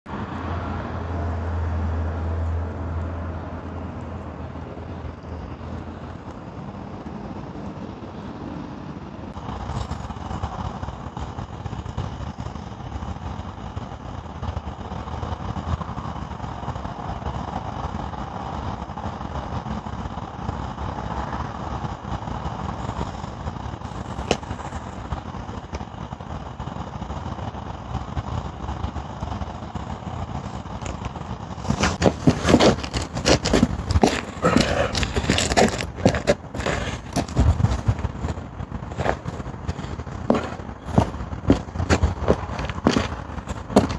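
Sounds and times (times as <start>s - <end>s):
low outdoor rumble: 0.1s - 43.9s
body scraping onto pavement: 31.6s - 43.9s.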